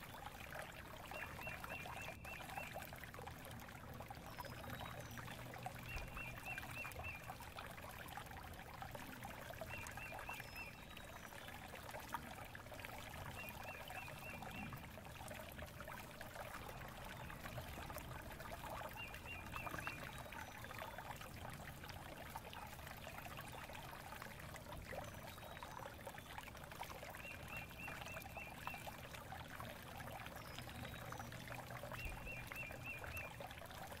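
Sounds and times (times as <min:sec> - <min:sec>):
trickling water: 0:00.0 - 0:34.0.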